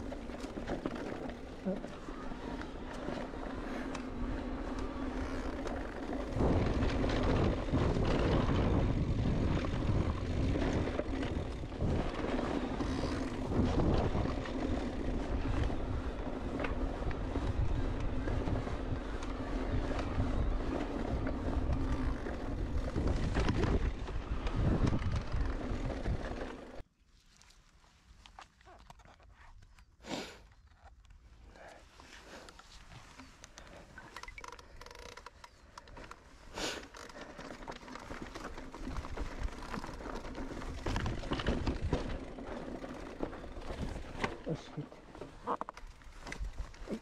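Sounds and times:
bike tyre rumble and clatter: 0:00.0 - 0:26.8, 0:30.8 - 0:47.0
wind buffeting microphone: 0:05.9 - 0:26.5.

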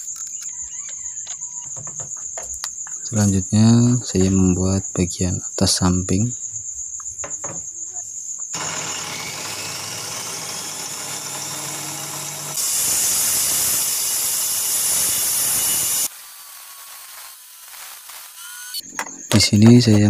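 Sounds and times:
table saw cutting wood: 0:08.6 - 0:18.8.

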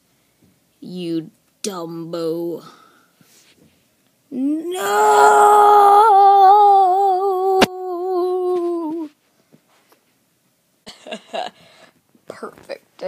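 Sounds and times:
person crying no: 0:04.3 - 0:09.1
soft vocal sounds: 0:04.3 - 0:09.2.

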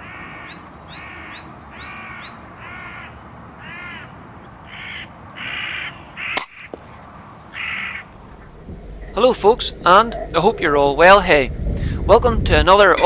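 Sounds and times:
crows cawing: 0:00.0 - 0:10.9
sharp crack: 0:06.3 - 0:10.4.

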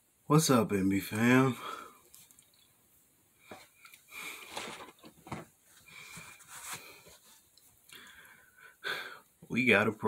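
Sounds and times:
clothing rustling: 0:03.4 - 0:07.8.

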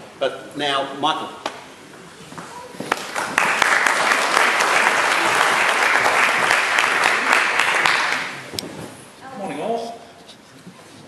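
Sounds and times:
audience applauding: 0:02.9 - 0:08.5.

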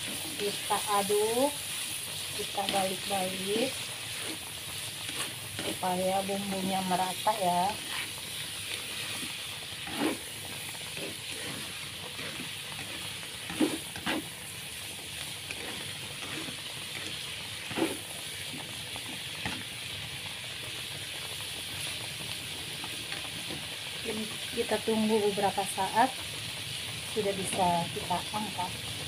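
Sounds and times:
stir-fry sizzling in a frying pan: 0:00.0 - 0:29.0.

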